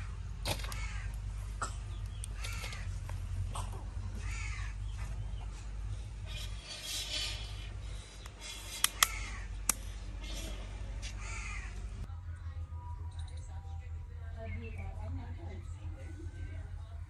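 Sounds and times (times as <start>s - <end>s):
crows cawing: 0.6s - 1.2s, 2.3s - 3.0s, 4.1s - 4.9s, 9.0s - 9.6s, 11.1s - 11.9s
sharp clicks: 8.2s - 9.8s.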